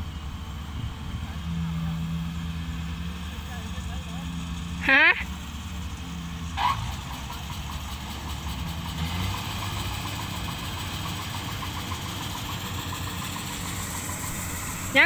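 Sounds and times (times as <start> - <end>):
combine harvester engine hum: 0.0 - 15.0.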